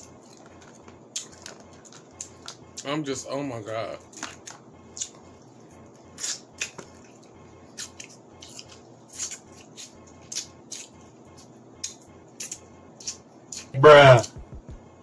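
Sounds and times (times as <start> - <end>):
biting and chewing: 0.0 - 2.9, 4.0 - 14.4
crab shells cracking: 0.3 - 2.6.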